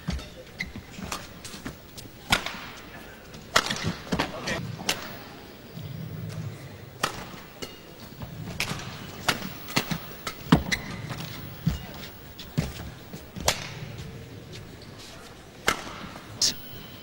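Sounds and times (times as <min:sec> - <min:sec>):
rackets striking shuttlecock: 0:03.5 - 0:05.2, 0:07.0 - 0:07.9, 0:08.5 - 0:11.9, 0:15.6 - 0:16.5.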